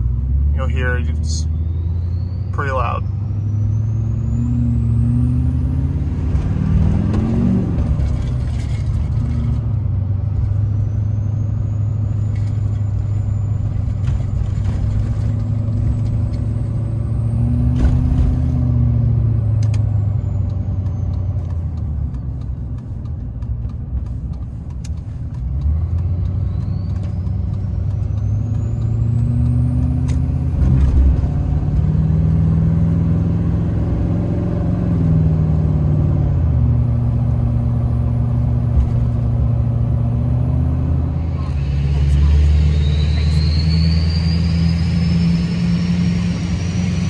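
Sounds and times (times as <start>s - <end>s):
heavy diesel engine drone: 0.0s - 47.0s
turbo whistle: 41.4s - 46.5s.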